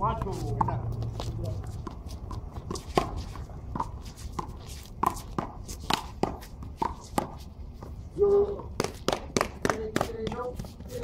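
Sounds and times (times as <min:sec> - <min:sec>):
footsteps and shoe scuffs on concrete: 0:00.0 - 0:09.1.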